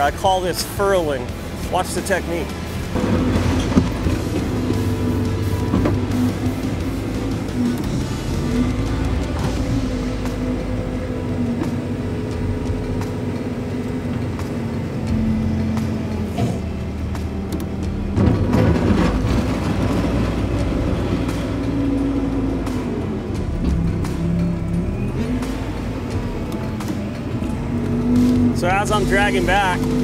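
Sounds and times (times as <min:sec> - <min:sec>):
diesel engine running under load: 0:00.0 - 0:30.0
bucket scraping and pouring dirt: 0:01.6 - 0:07.3, 0:18.2 - 0:21.6.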